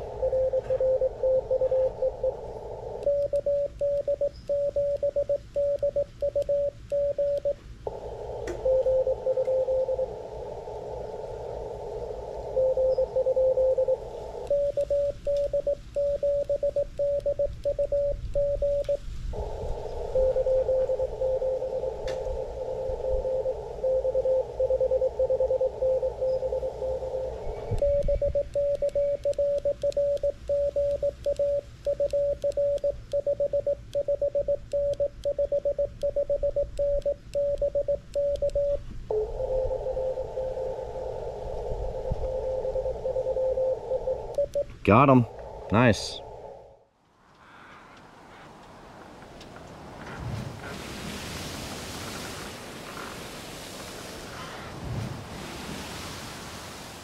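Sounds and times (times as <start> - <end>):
morse code tones: 0.0 - 2.4, 3.0 - 7.6, 8.5 - 10.1, 12.5 - 46.4
paddle-keyed sidetone: 0.0 - 2.4, 3.0 - 7.6, 8.6 - 10.1, 12.6 - 19.5, 20.1 - 41.2, 42.0 - 46.2
receiver hiss: 0.0 - 46.9.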